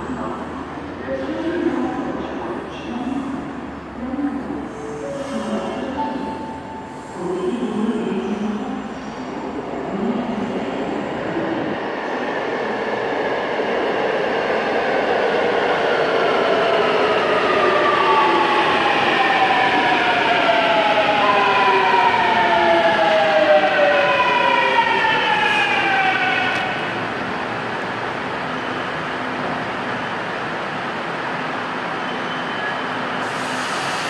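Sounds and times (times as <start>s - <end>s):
train braking: 32.0s - 34.0s.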